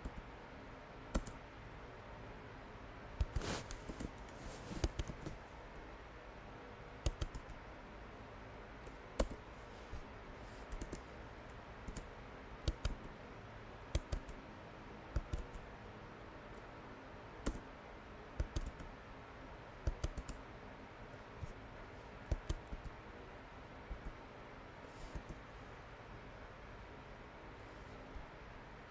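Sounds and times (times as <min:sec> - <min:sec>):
keyboard keystrokes: 0:01.1 - 0:01.4, 0:04.8 - 0:05.4, 0:07.0 - 0:07.6, 0:09.2 - 0:09.4, 0:10.7 - 0:11.0, 0:11.8 - 0:13.1, 0:13.9 - 0:14.4, 0:15.1 - 0:15.6, 0:18.4 - 0:18.9, 0:19.8 - 0:20.4, 0:22.3 - 0:22.9.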